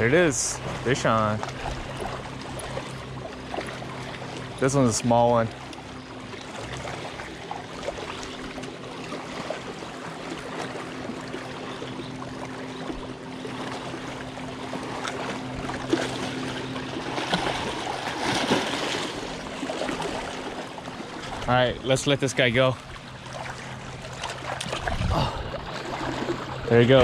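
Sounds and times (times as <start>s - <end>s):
small waves lapping on rocks: 13.5s - 27.0s.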